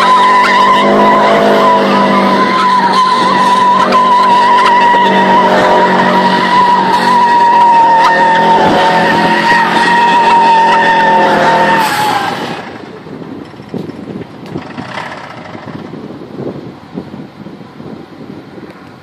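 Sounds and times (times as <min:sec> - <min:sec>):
tyres squealing: 0:00.0 - 0:12.8
car engine at high revs: 0:00.0 - 0:19.0.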